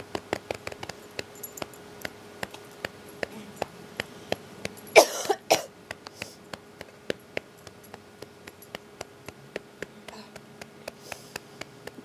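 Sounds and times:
person coughing: 0:05.0 - 0:05.7.

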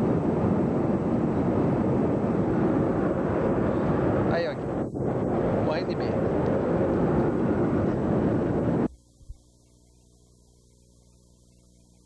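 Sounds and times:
airliner cabin noise: 0:00.0 - 0:08.9
faint electrical hum: 0:00.0 - 0:12.0.

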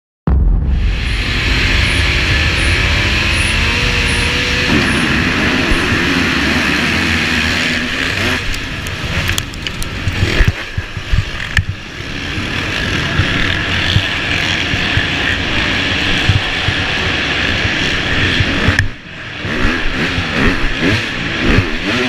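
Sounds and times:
rushing air: 0:00.3 - 0:09.4
motocross bike engine accelerating: 0:00.7 - 0:22.0.

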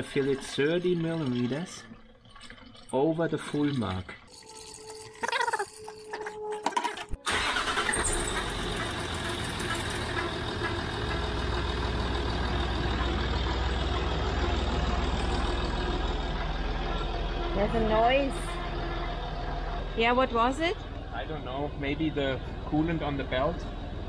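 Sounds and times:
liquid pouring through a funnel: 0:00.0 - 0:06.3
car engine starting and idling: 0:07.2 - 0:24.0.

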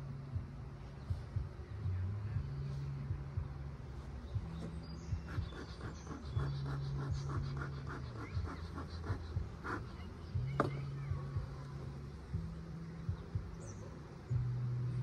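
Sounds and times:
honeybees buzzing: 0:03.4 - 0:14.3.

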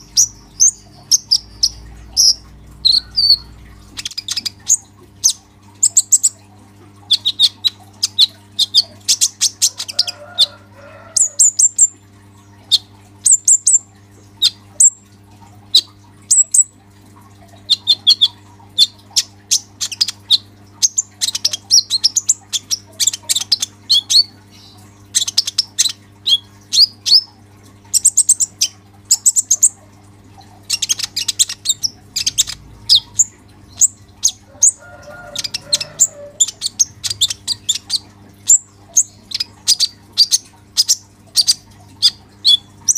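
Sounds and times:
sunbird singing chirps and trills: 0:35.4 - 0:42.9.

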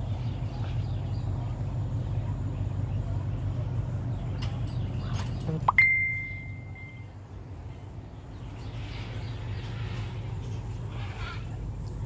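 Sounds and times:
bright bell-like ding: 0:05.7 - 0:07.0.

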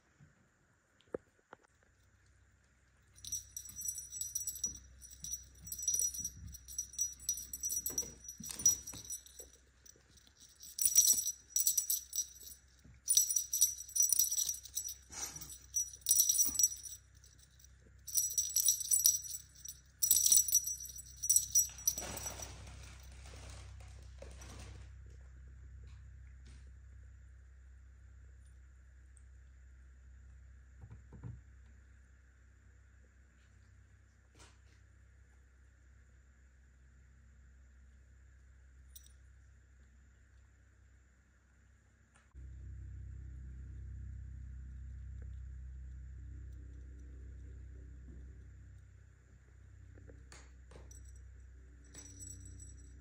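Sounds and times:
small bell jingling: 0:03.1 - 0:23.0, 0:51.9 - 0:53.0.

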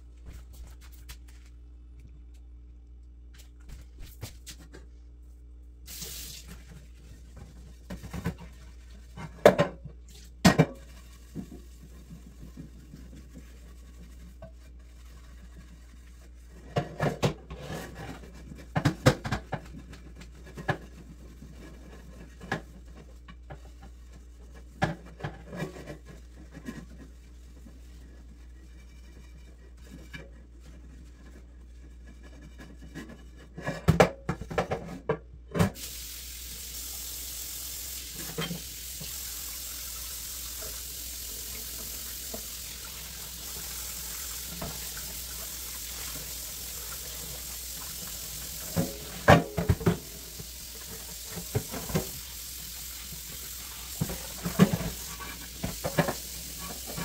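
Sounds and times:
dishes clinking in metal sink: 0:48.7 - 0:50.2.

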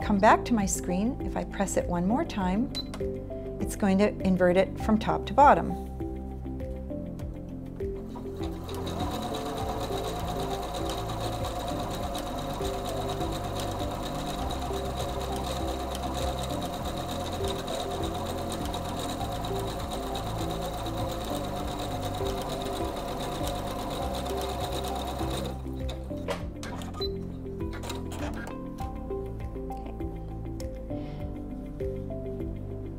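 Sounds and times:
background music: 0:00.0 - 0:32.9
sewing machine stitching: 0:08.2 - 0:26.1.

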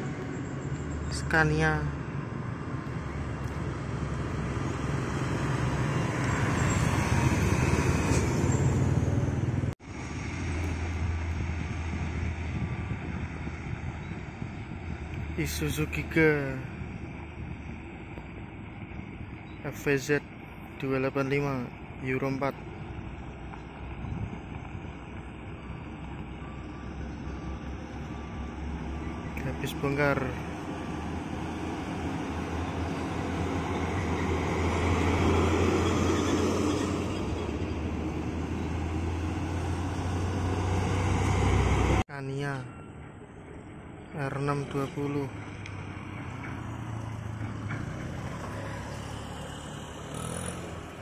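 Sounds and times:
heavy truck driving past: 0:01.9 - 0:15.7, 0:22.9 - 0:42.0, 0:45.3 - 0:51.0
truck engine droning: 0:20.9 - 0:42.0.

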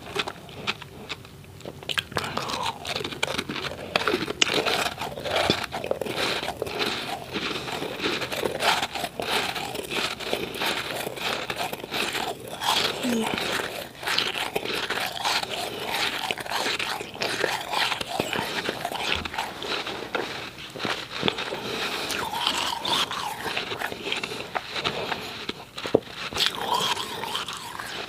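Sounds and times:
ice being chewed: 0:00.0 - 0:28.0.

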